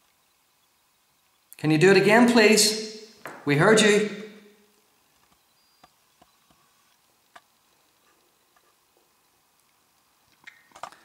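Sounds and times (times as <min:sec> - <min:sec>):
faint ticks and clicks: 0:04.8 - 0:11.0.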